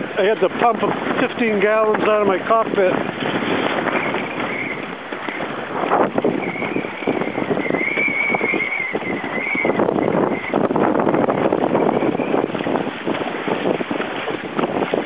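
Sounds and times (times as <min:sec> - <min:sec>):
water slapping against hull: 0:00.0 - 0:15.0
wind buffeting microphone: 0:00.0 - 0:15.0
high wavering whistle: 0:06.3 - 0:10.5.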